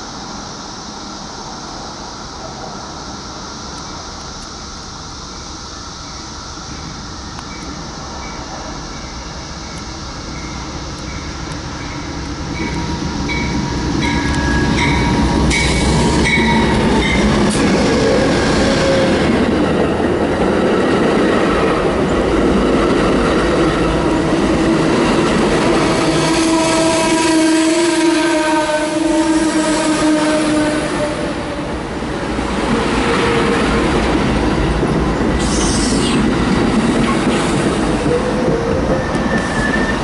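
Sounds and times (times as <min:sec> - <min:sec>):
train rumbling past: 0:00.0 - 0:40.0
train squealing tone: 0:05.3 - 0:19.5, 0:25.7 - 0:31.8, 0:35.3 - 0:36.3, 0:37.0 - 0:40.0
locomotive bell dinging: 0:07.5 - 0:17.3.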